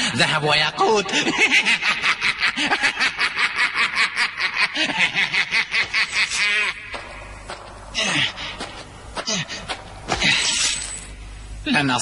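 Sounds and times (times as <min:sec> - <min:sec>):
man laughing breathily: 0:04.5 - 0:06.8.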